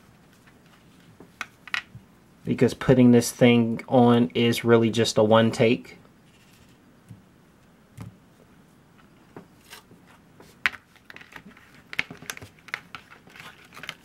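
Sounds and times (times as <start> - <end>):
plastic crinkles and clicks: 10.7 - 14.0.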